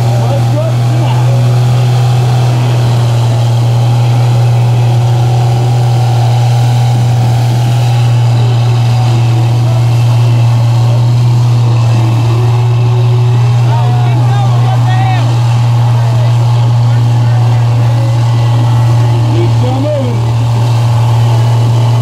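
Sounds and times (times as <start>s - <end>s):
faint crowd voices: 0.0s - 22.0s
truck engine running hard: 0.0s - 22.0s.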